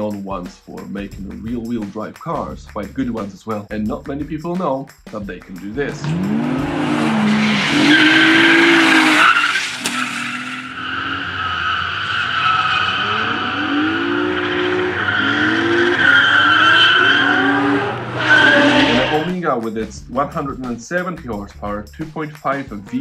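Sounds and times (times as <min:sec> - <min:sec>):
car engine revving: 0:05.5 - 0:19.4
tyres squealing: 0:06.8 - 0:19.3.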